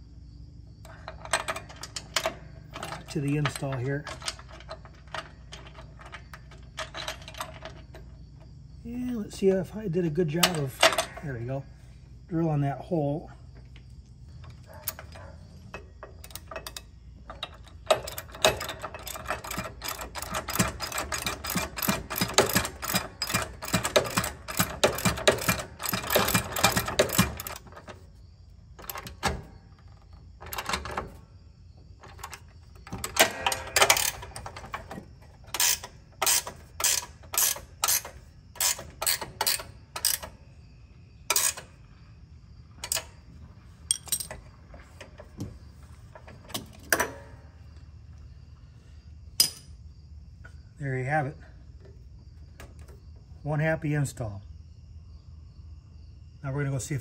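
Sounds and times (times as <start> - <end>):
socket ratchet clicking: 35.5 - 40.4.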